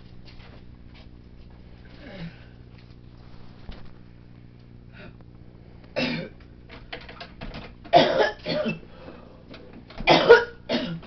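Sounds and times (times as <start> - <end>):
faint steady hum: 0.0 - 11.0
person coughing: 6.0 - 6.4, 7.9 - 8.9, 10.0 - 11.0.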